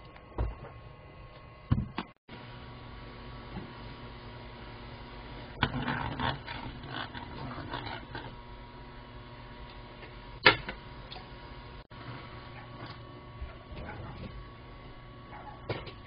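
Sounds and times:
steady low hum: 0.0 - 16.0
liquid boiling: 2.4 - 10.2.

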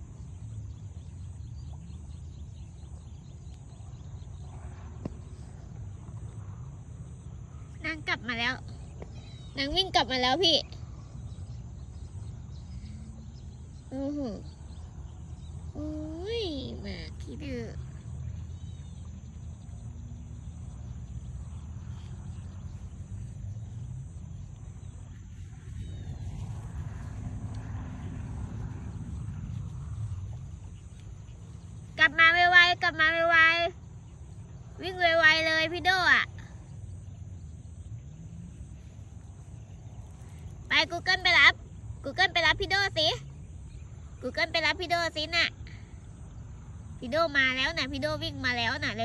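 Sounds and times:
low rumble: 0.0 - 44.6
wind buffeting microphone: 0.0 - 49.0
faint quick chirping calls: 0.2 - 27.7.

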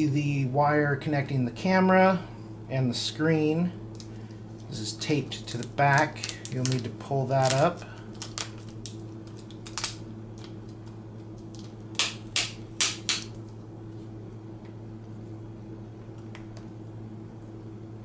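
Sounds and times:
steady low hum: 0.0 - 18.0
scratchy cable handling sounds: 4.0 - 12.0.

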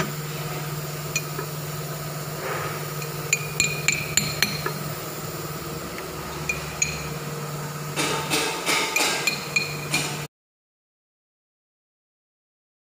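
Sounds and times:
steady low hum: 0.0 - 10.3
hammer tapping metal: 3.0 - 4.9, 6.4 - 7.2, 7.9 - 10.3.

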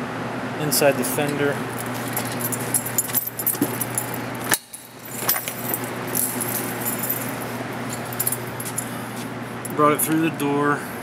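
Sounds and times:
steady low hum: 0.0 - 11.0
jingling and handling clicks: 1.0 - 9.0.

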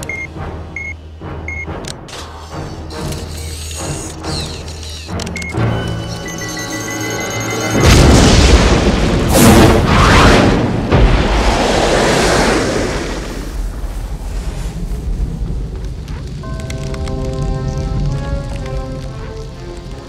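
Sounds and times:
music: 0.0 - 8.5, 16.4 - 20.0
huge explosion booming: 7.8 - 16.3.

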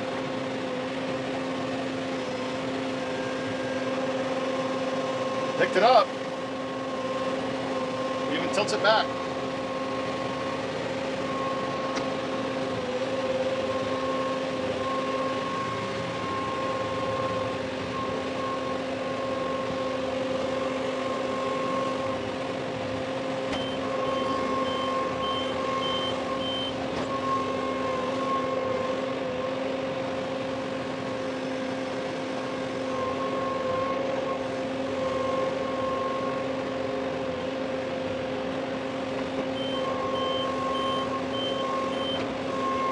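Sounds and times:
diesel tractor engine running: 0.0 - 42.9
high beeps: 23.6 - 27.6, 39.6 - 42.9.

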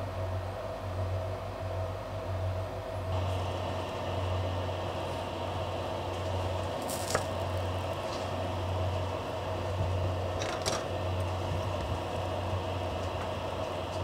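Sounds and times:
kitchen fan humming: 3.0 - 14.0.

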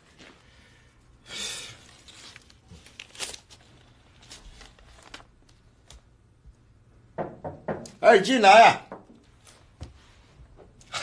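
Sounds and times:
paper pages rustling: 1.9 - 6.0.

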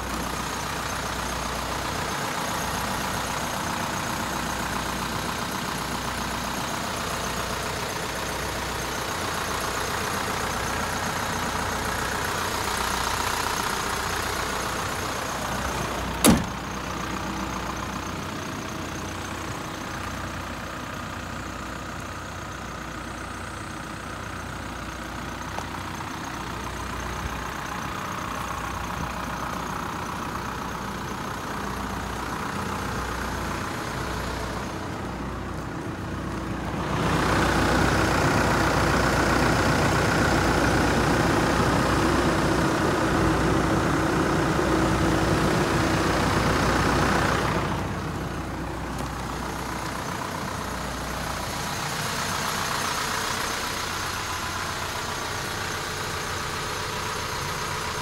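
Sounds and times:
diesel bus engine idling: 0.0 - 58.0
sharp knock: 16.2 - 16.5.

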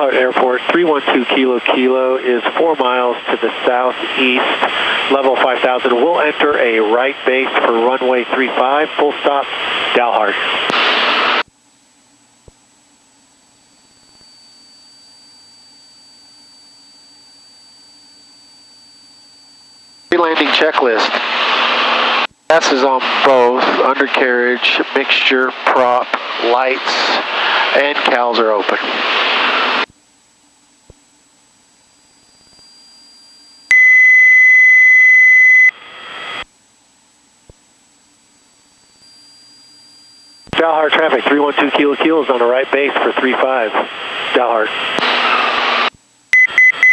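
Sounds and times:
thin high whine: 0.0 - 11.5, 12.4 - 29.9, 30.6 - 36.5, 37.4 - 46.9
low hum: 0.0 - 46.9
electronic beep tone: 32.2 - 36.4, 46.4 - 46.9
faint intercom hiss: 40.6 - 44.8.

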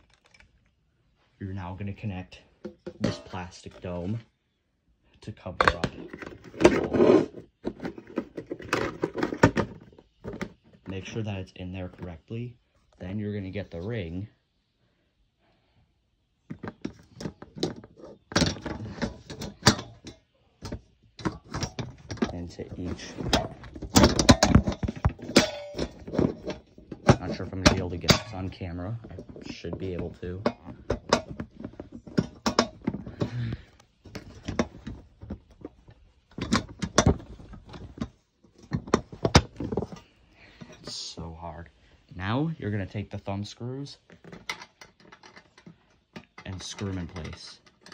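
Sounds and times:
metal ring clinking and knocking: 2.6 - 3.8, 16.5 - 41.0, 44.1 - 47.9.

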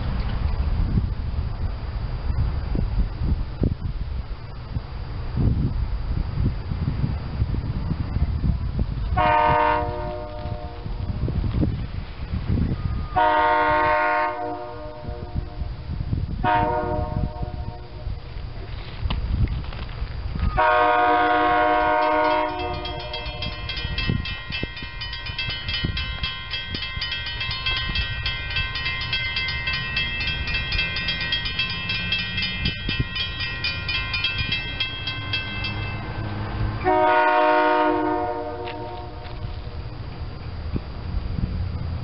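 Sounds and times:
low rumble of train: 0.0 - 42.0
train horn blasts: 9.1 - 11.1, 13.0 - 15.8, 16.4 - 18.1, 20.5 - 24.8, 35.7 - 39.5
crossing bell ringing rapidly: 21.8 - 36.6.

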